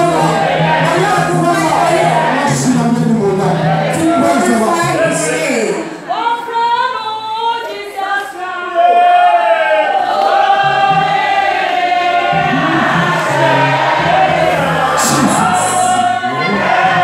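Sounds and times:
low bass notes: 0:00.0 - 0:05.3, 0:10.6 - 0:17.0
choir singing gospel song: 0:00.0 - 0:06.2, 0:08.8 - 0:17.0
instrumental backing: 0:10.3 - 0:17.0.

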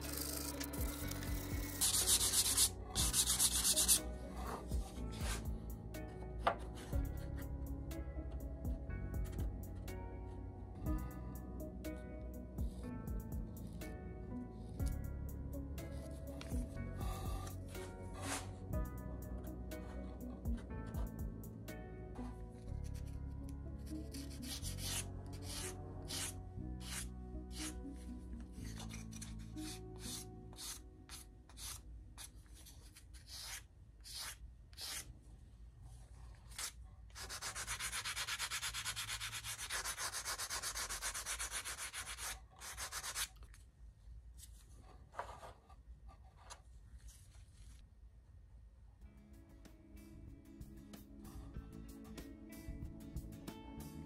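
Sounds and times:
sandpaper rubbing on wood: 0:01.1 - 0:04.0, 0:36.6 - 0:43.3.

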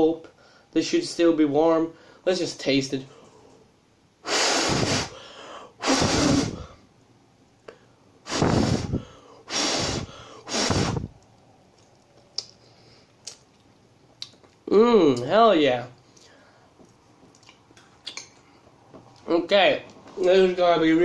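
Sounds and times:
puffs of breath blowing: 0:04.2 - 0:06.9, 0:07.7 - 0:11.1.

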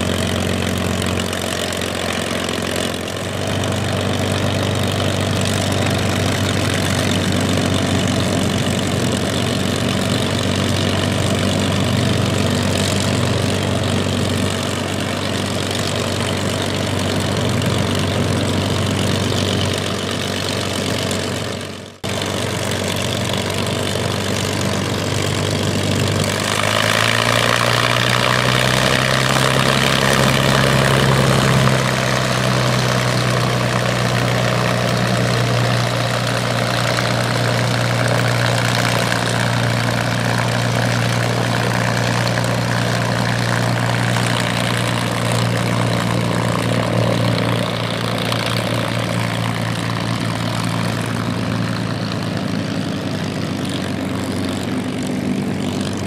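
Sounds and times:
aircraft engine idling: 0:00.0 - 0:56.0.

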